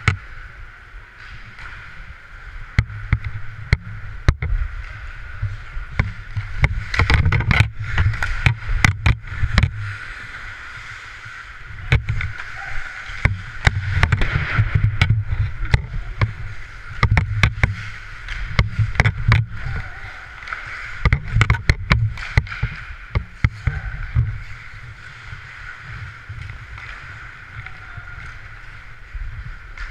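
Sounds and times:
hockey sticks and puck clacking: 0.0s - 29.9s
skate blades scraping ice: 2.8s - 29.9s
low rumble on helmet microphone: 11.6s - 29.9s.

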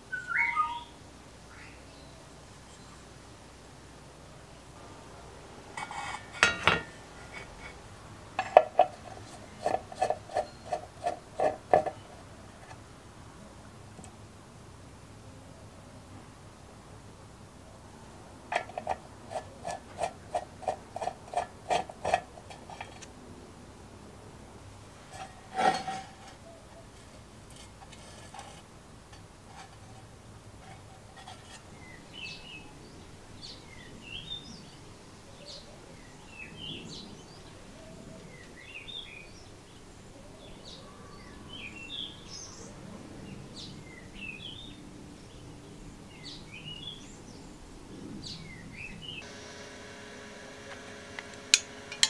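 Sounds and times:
birds chirping: 0.1s - 3.0s
screwdriver turning a screw: 50.6s - 52.0s.

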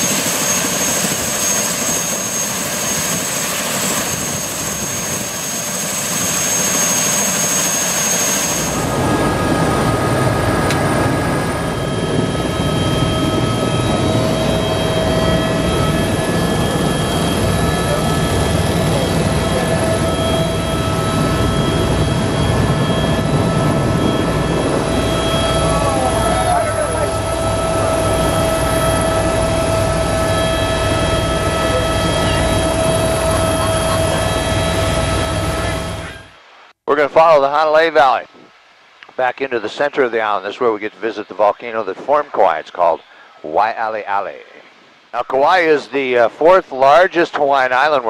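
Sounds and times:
helicopter cabin drone: 0.0s - 36.4s
helicopter turbine whine: 0.0s - 38.5s.

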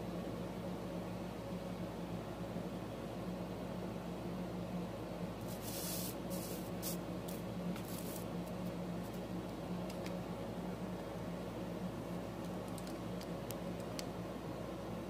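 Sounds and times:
room hum and hiss: 0.0s - 15.0s
paper and pencil rustling: 5.4s - 9.2s.

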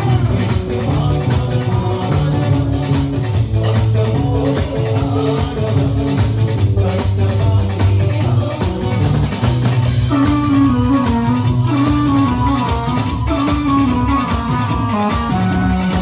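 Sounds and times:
live band music over loudspeakers: 0.0s - 16.0s.

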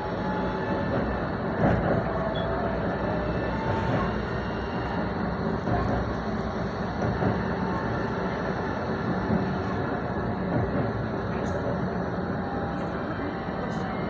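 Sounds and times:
tram wheels rumbling on rails: 0.0s - 14.0s.

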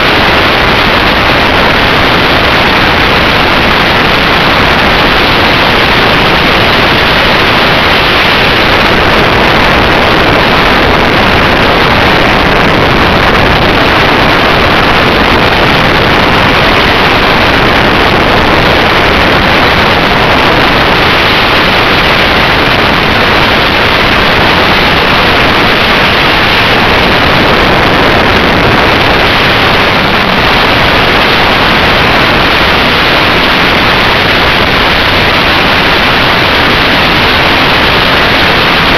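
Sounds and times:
loud rushing hiss: 0.0s - 38.9s.

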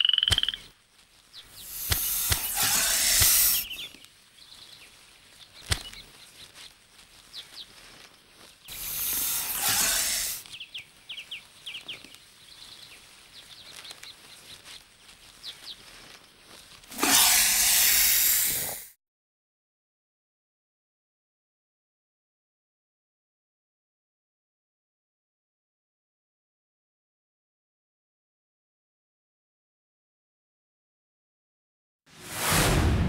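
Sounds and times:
high bird chirps: 0.0s - 0.7s, 1.4s - 6.7s
snake hissing: 1.5s - 3.9s, 8.7s - 10.4s, 16.9s - 19.0s.

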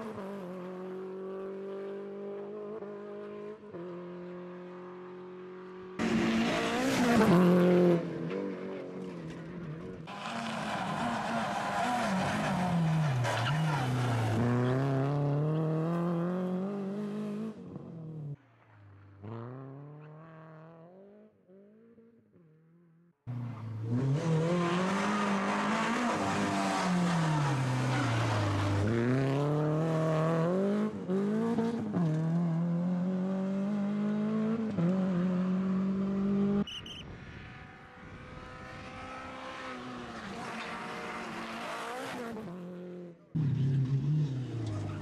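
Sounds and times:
rally car engine revving: 5.8s - 18.2s, 23.3s - 36.7s, 37.3s - 45.0s.

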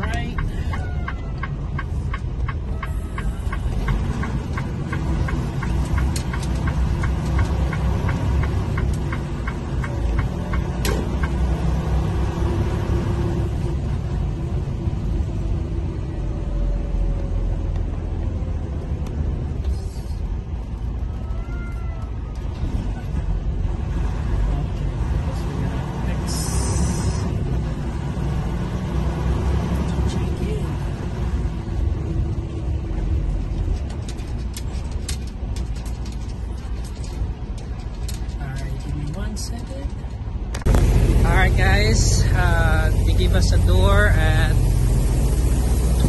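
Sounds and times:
turn signal ticking: 0.0s - 12.1s
diesel engine rumbling: 0.0s - 46.0s.

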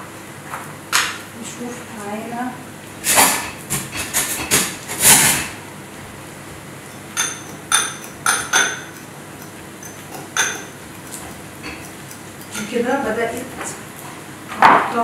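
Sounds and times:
utensils knocking and scraping pots: 3.0s - 5.6s, 6.8s - 13.8s
ringing metal clinks: 6.9s - 10.8s.

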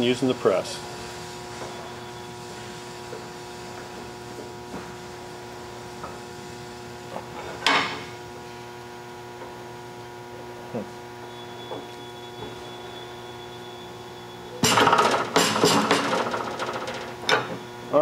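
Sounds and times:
electrical hum: 0.0s - 18.0s
sharp metallic clunk: 14.6s - 16.2s.

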